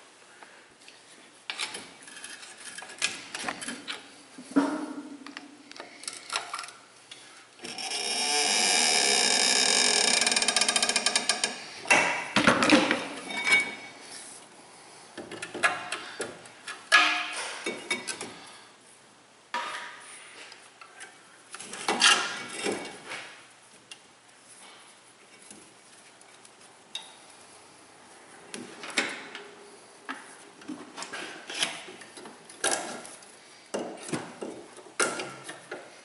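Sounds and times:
metal clanks and knocks: 0:01.5 - 0:05.2, 0:15.2 - 0:18.4.

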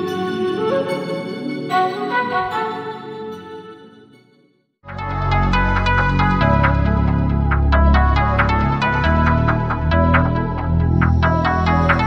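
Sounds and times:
electronic music with deep bass: 0:04.9 - 0:12.0.

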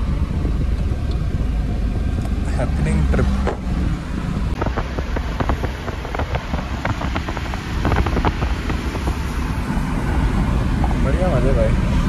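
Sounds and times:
car engine and road rumble: 0:00.0 - 0:12.0
wind across microphone: 0:00.0 - 0:12.0.

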